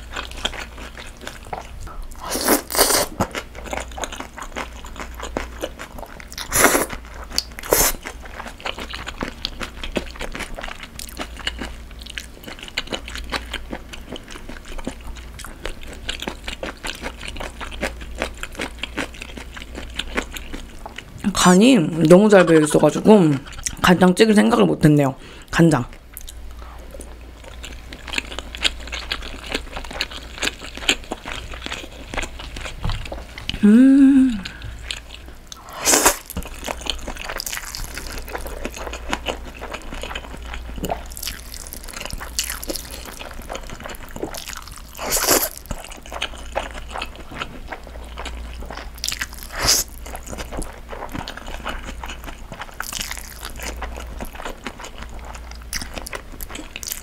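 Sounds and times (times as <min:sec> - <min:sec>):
slurping noodles: 0:07.6 - 0:08.0, 0:49.5 - 0:49.9
person humming mm: 0:33.6 - 0:34.8
wet chewing and biting: 0:34.5 - 0:57.0.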